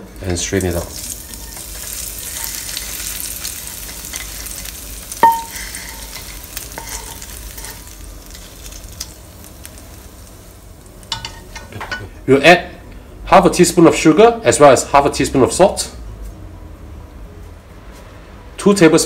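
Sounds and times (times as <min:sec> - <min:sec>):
hot oil sizzling: 0:00.0 - 0:12.4
metallic clink: 0:05.2 - 0:07.2.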